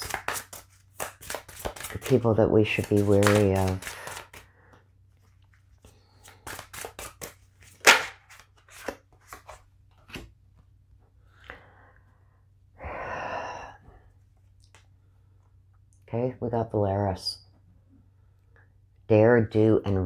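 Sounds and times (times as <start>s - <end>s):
card rustle: 0.0s - 4.5s, 5.3s - 10.3s
cards being shuffled: 0.0s - 4.5s, 5.3s - 10.3s.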